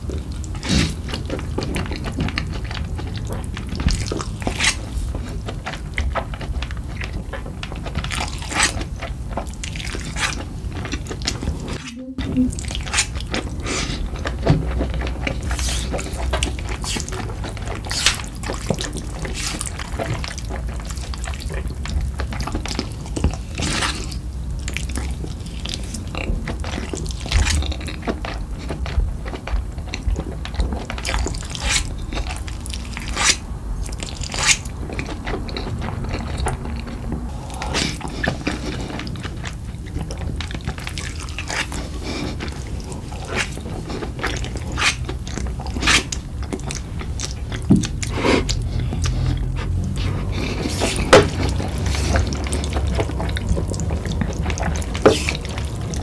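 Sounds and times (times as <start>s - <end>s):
slurping and chewing noodles: 0.0s - 56.0s.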